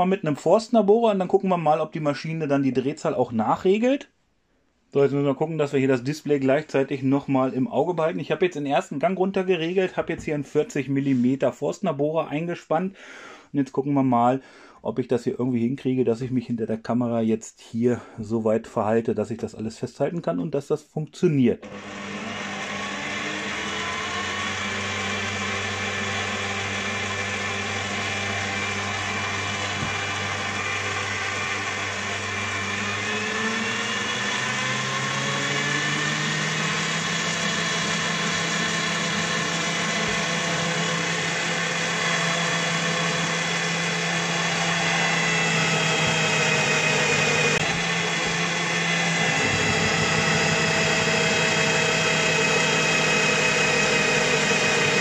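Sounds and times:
drill bit boring into wood: 0:21.6 - 0:55.0
drill press motor running: 0:21.6 - 0:55.0.

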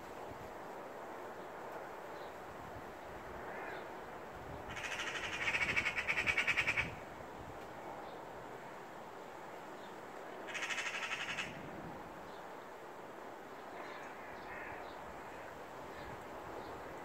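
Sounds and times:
magpie chattering rattle: 0:04.7 - 0:06.9.

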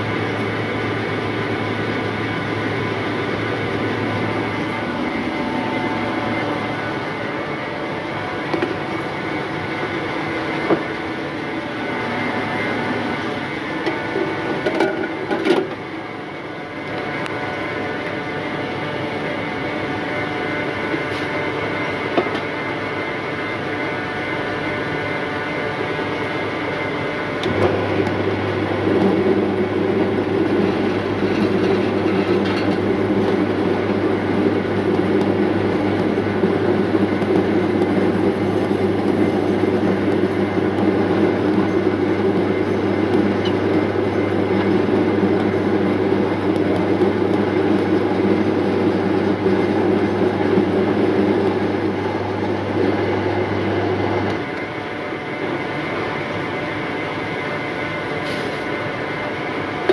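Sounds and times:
sorting machine humming: 0:00.0 - 0:59.9
grain rushing through rollers: 0:27.5 - 0:49.9.

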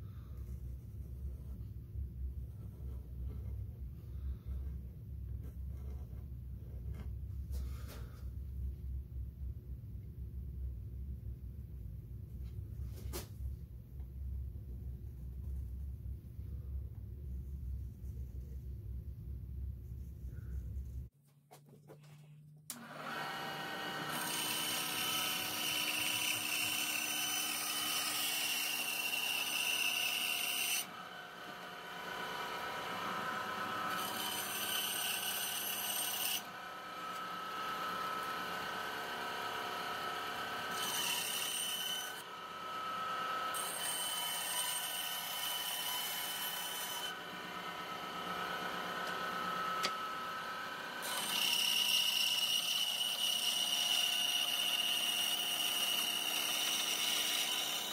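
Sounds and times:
band saw motor hum: 0:22.7 - 0:57.9.

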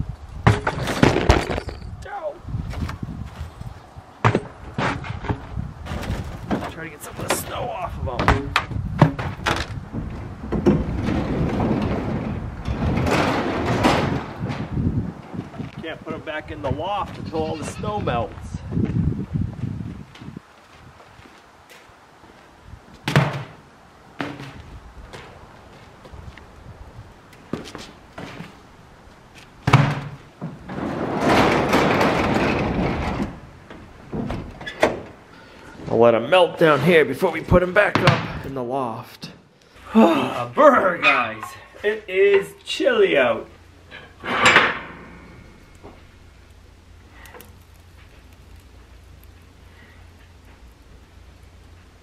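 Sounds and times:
garage door rumbling and rattling: 0:04.2 - 0:19.2, 0:29.6 - 0:35.3, 0:43.9 - 0:46.5.

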